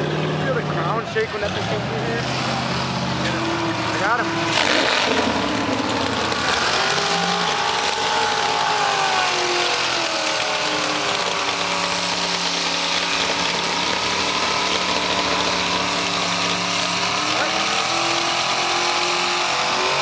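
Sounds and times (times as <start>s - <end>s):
truck engine revving in mud: 0.0s - 20.0s.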